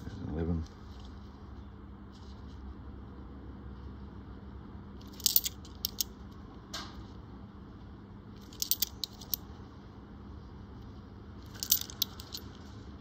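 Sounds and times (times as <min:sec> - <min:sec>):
coins clinking together: 0:05.0 - 0:06.0, 0:08.4 - 0:09.4, 0:11.4 - 0:12.5.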